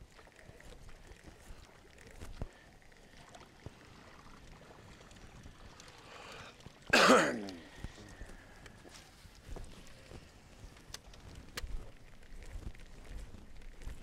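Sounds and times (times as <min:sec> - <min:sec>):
person clearing throat: 0:06.9 - 0:07.7.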